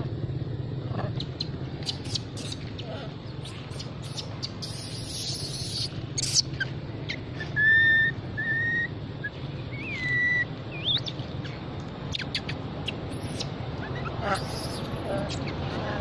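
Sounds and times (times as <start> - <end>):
low steady hum: 0.0 - 16.0
baby monkey crying: 1.2 - 6.7, 12.2 - 16.0
rustling hiss: 1.3 - 7.6.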